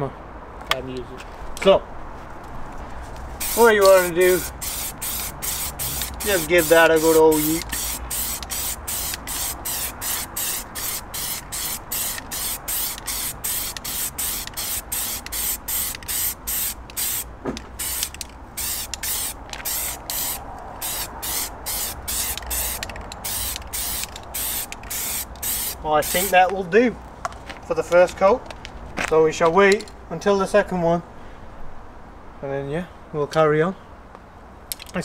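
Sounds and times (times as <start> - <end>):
aerosol can spraying in bursts: 3.4 - 26.4.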